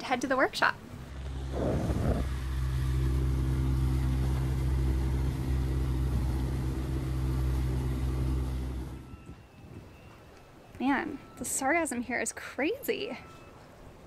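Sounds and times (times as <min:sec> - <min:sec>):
winch motor running: 0:01.1 - 0:09.4.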